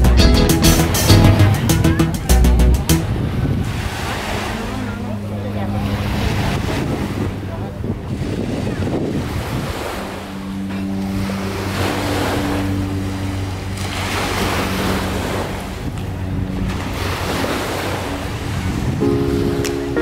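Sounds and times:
wind buffeting microphone: 3.0s - 13.8s, 14.7s - 19.9s
waves lapping on sand: 3.0s - 20.0s.

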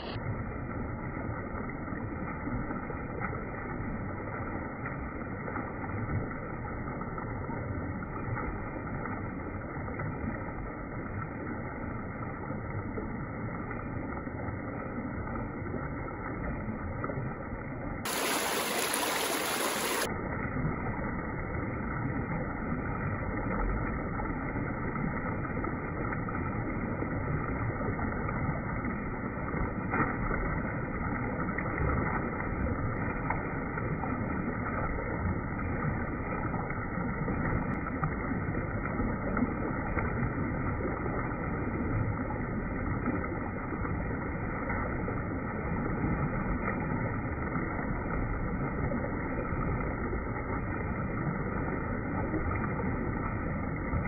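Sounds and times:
stream rushing over stones: 0.0s - 0.2s, 18.0s - 20.2s.

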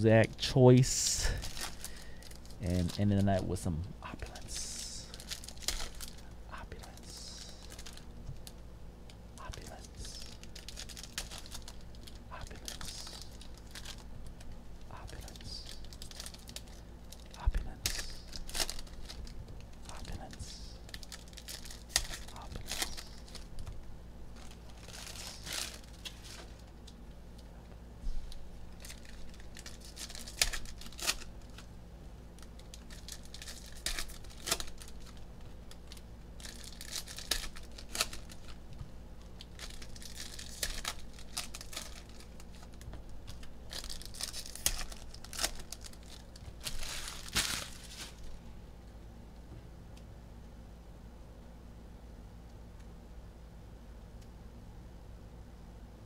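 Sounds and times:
foil wrappers crinkling: 1.2s - 3.4s, 4.3s - 8.6s, 9.5s - 26.8s, 28.7s - 31.7s, 32.4s - 38.6s, 39.3s - 48.4s.

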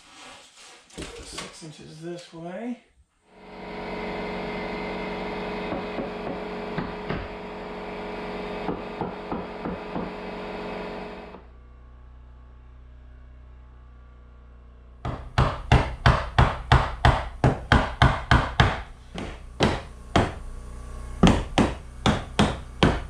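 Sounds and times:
power tool cutting wood: 3.3s - 11.4s
low hum: 10.2s - 15.1s, 18.9s - 22.9s
sharp knocks of wood: 15.1s - 20.4s, 21.2s - 23.0s.

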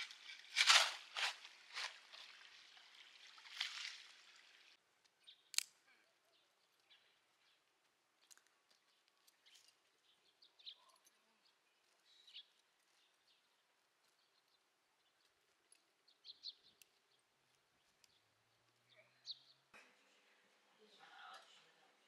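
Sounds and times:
faint bird chirps: 5.2s - 19.7s.

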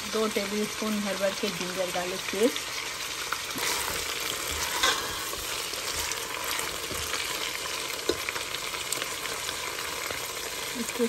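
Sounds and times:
meat and onions sizzling in oil: 0.0s - 11.0s
spatula scraping pot: 3.5s - 8.3s.

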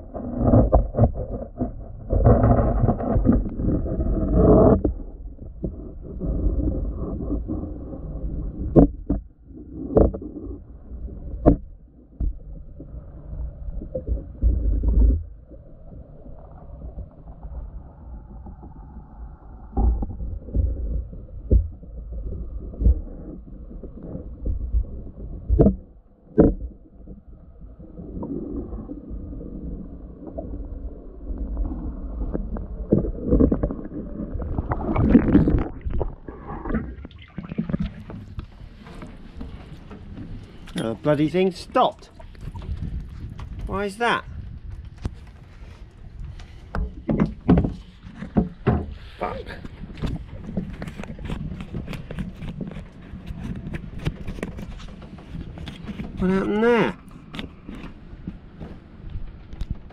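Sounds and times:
low underwater rumble: 0.0s - 59.9s
water sloshing and splashing: 0.0s - 59.9s.

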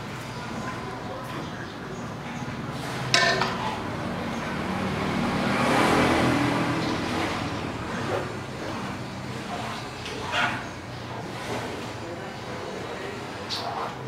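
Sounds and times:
motor vehicle passing: 2.6s - 12.2s.

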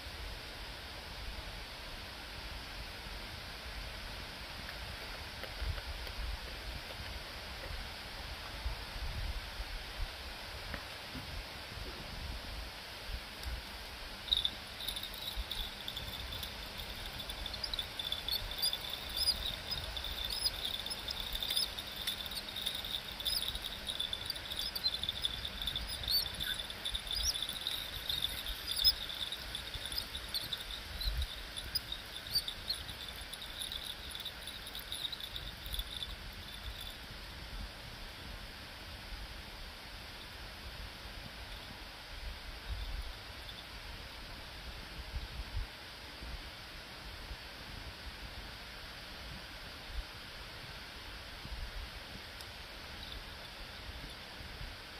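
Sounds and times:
low wind rumble on microphone: 1.0s - 54.9s
insect trilling and chirping: 14.1s - 37.2s, 52.8s - 54.2s.

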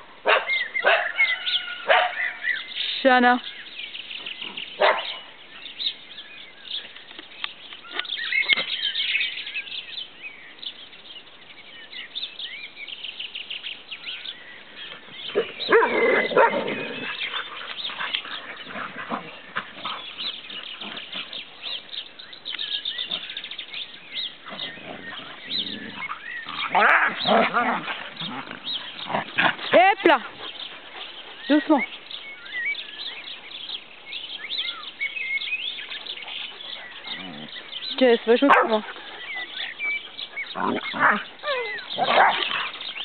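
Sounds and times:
dogs barking and yipping: 0.2s - 2.6s, 4.5s - 5.4s, 15.2s - 22.1s, 24.2s - 32.0s, 34.5s - 43.0s.

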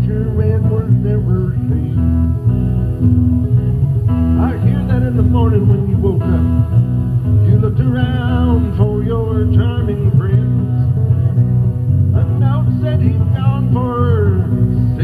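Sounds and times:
guitar chords: 0.0s - 15.0s.

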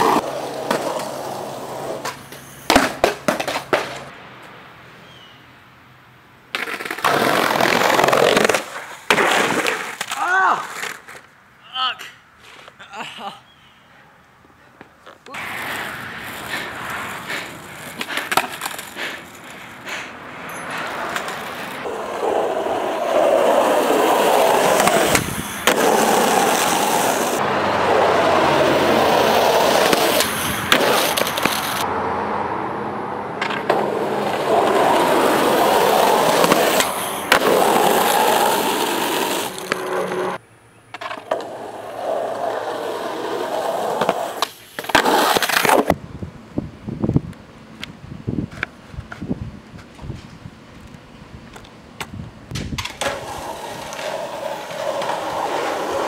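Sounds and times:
skateboard clacks: 0.0s - 4.1s, 15.3s - 31.9s, 33.4s - 46.0s, 51.5s - 56.0s
skateboard wheels rolling on asphalt: 0.0s - 11.6s, 14.4s - 56.0s.

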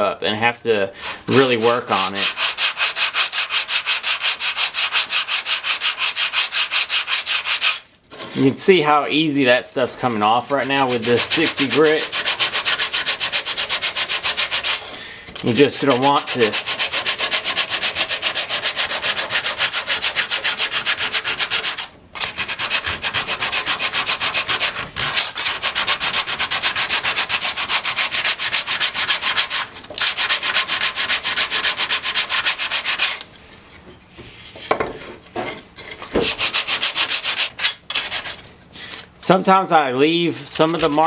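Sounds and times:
sandpaper rubbing on wood: 1.0s - 8.6s, 10.5s - 14.9s, 15.7s - 33.2s, 36.2s - 38.5s, 40.3s - 41.0s.

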